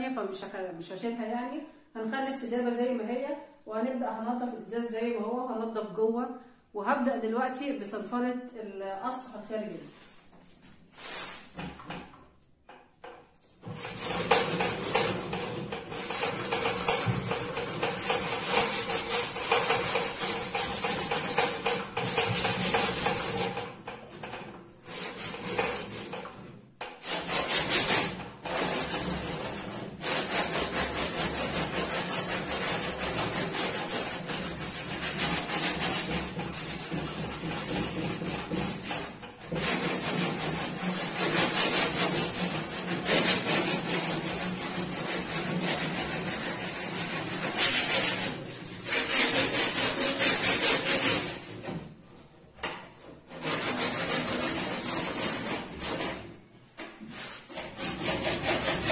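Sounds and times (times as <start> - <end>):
sandpaper rasping on wood: 10.9 - 11.5, 13.6 - 23.8, 24.9 - 26.3, 27.0 - 51.8, 53.3 - 56.2, 57.0 - 58.9.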